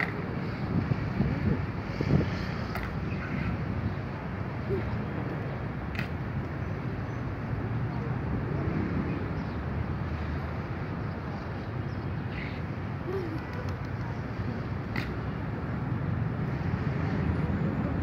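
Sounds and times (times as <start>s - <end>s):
traffic rumble: 0.0s - 18.0s
faint voices: 12.3s - 15.8s.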